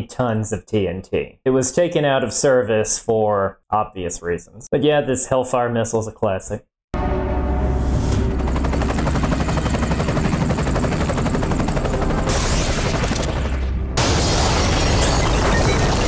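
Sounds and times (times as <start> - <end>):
helicopter rotor beating: 7.9 - 16.0
missile explosion blast and rumble: 12.2 - 16.0.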